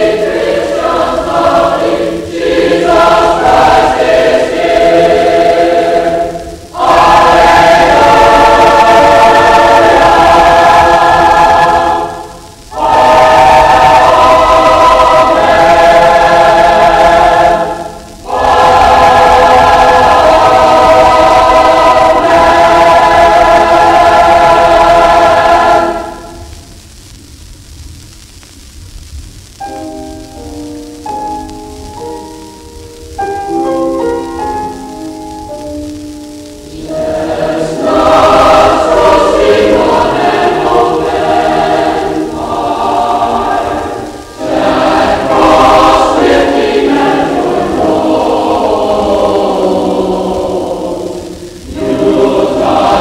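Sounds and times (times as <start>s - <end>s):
choir singing sustained chords: 0.0s - 26.8s, 29.6s - 53.0s
faint recording background noise: 0.0s - 53.0s.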